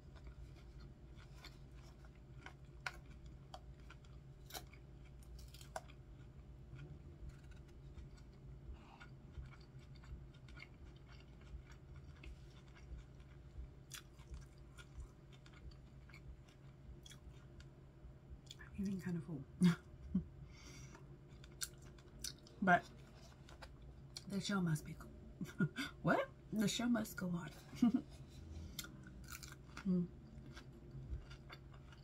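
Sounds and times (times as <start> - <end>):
person chewing crunchy salad: 0.0 - 17.6, 20.9 - 24.2, 28.2 - 32.0
faint low hum: 0.0 - 32.0.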